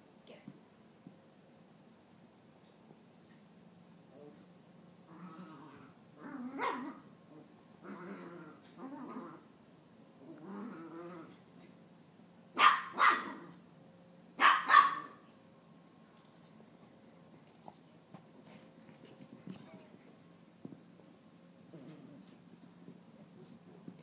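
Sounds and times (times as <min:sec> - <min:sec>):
dog growling: 0:05.1 - 0:09.5, 0:10.2 - 0:11.4, 0:21.7 - 0:22.4
dog barking sharply: 0:12.6 - 0:13.3, 0:14.4 - 0:15.2.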